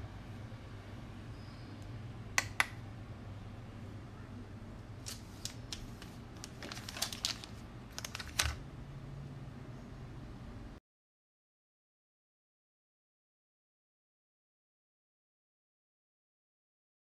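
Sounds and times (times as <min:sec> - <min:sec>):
foil pouch crinkling: 0:05.0 - 0:08.6.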